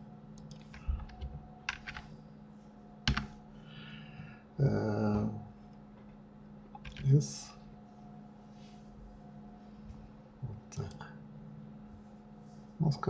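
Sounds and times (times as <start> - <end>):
keyboard and mouse clicks: 0.4 - 2.0, 3.1 - 3.3, 6.7 - 7.1.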